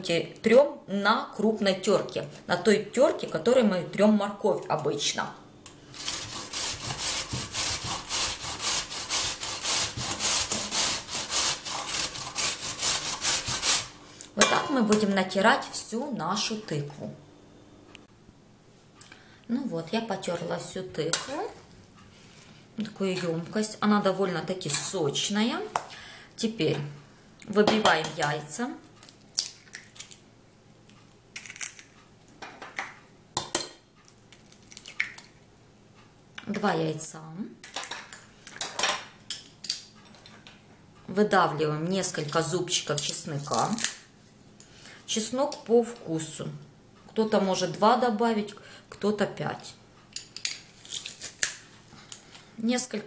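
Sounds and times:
pumpkin grating on a metal grater: 6.0s - 13.9s
eggshells cracking on bowl: 29.0s - 30.2s, 31.3s - 32.0s, 34.1s - 35.4s.

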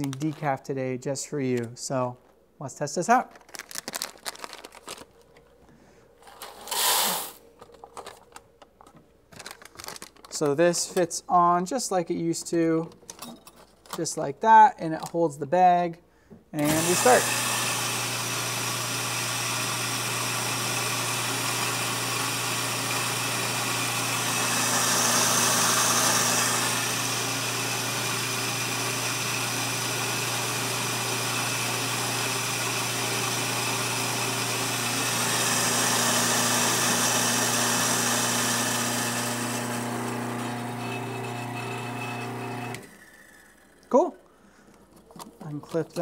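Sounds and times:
grinding hiss: 6.7s - 7.4s
coffee grinder motor hum: 16.6s - 43.8s.

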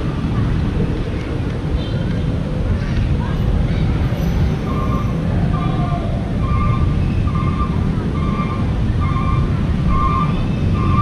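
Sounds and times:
wind rumble on microphone: 0.0s - 11.0s.

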